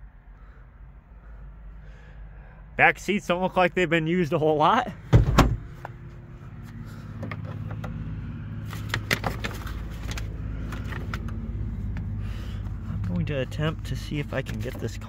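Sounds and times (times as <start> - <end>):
clicks and rustling: 8.6 - 12.1.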